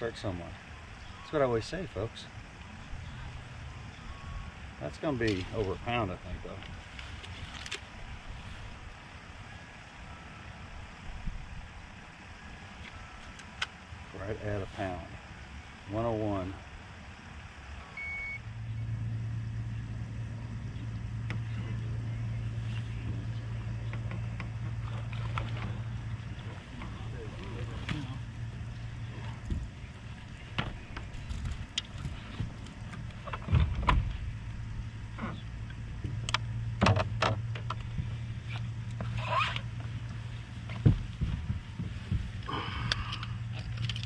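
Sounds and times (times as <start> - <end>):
low hum: 0.0 - 44.0
knocks and thumps on boat deck: 29.1 - 34.3, 35.2 - 38.1, 39.0 - 42.6.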